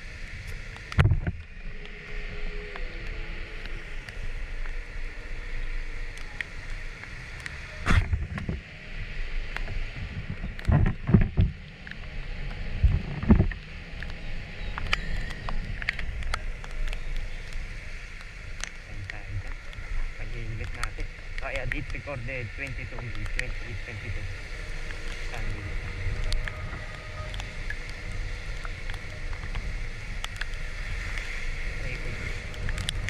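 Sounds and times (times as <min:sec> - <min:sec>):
wind and tyre hiss: 0:00.0 - 0:33.0
scooter engine rumble: 0:13.8 - 0:33.0.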